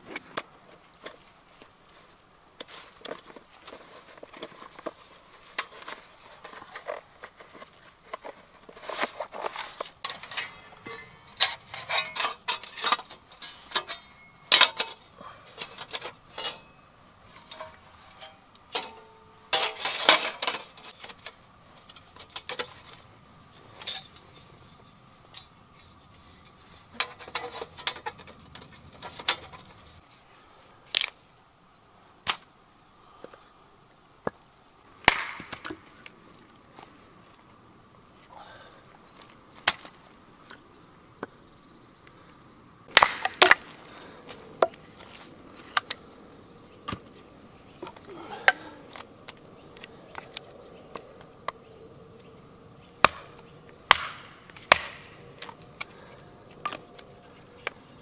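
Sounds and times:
metal plates clinking and clacking: 10.0s - 15.0s, 15.6s - 23.0s, 23.8s - 29.8s.

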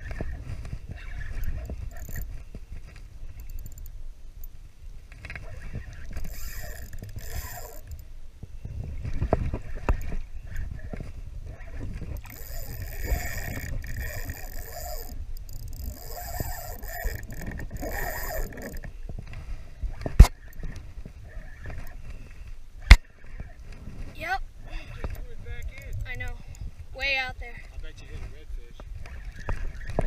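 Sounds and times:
fishing reel gears whirring: 0.0s - 2.5s, 3.2s - 4.6s, 5.4s - 8.1s, 8.7s - 18.9s, 19.8s - 22.0s, 25.0s - 27.2s
wind on microphone: 0.0s - 3.8s, 4.4s - 30.0s
low rumble of water: 0.0s - 30.0s.

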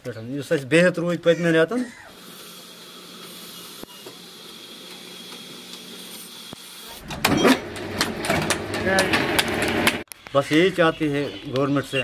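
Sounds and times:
loud mechanical knocking noise: 7.1s - 10.0s.

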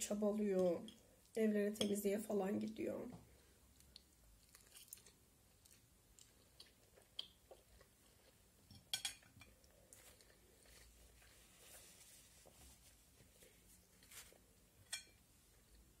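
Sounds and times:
faint chewing: 3.2s - 12.6s.

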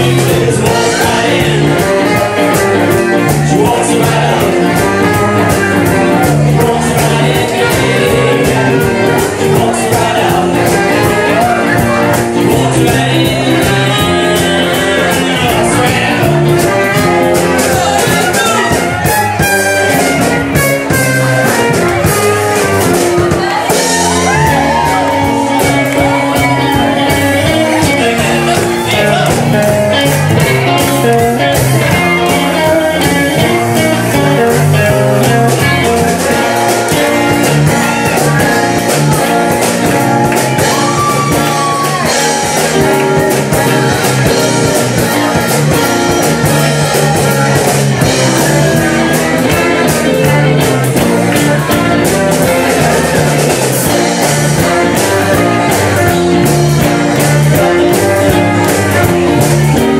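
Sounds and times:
person singing: 0.0s - 19.2s, 22.8s - 59.9s
funk band playing: 0.0s - 59.9s.

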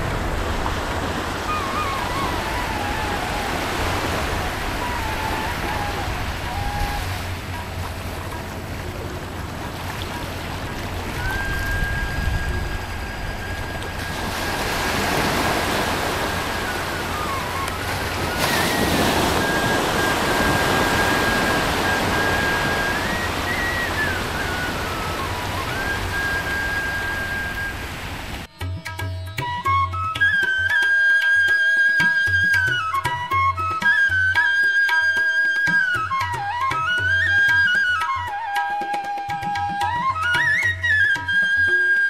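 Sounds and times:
sea surf on beach: 0.0s - 28.5s.

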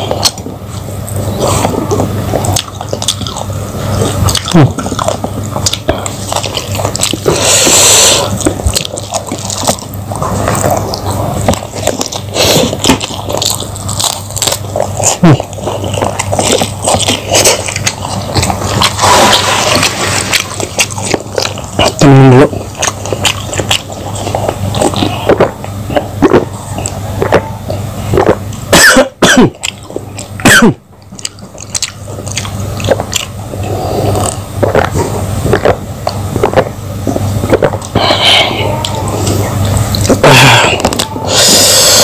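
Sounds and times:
wet chewing and lip-smacking: 0.0s - 42.0s
short throat hum: 4.1s - 6.1s, 21.8s - 22.7s, 24.8s - 29.7s, 30.4s - 30.8s, 36.5s - 42.0s
mouth clicks: 10.4s - 42.0s.

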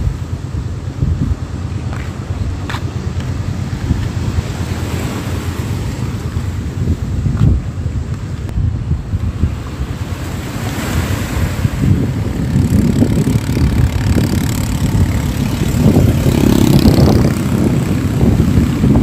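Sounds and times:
wind buffeting microphone: 0.0s - 19.0s
waves washing over rocks: 1.4s - 19.0s.

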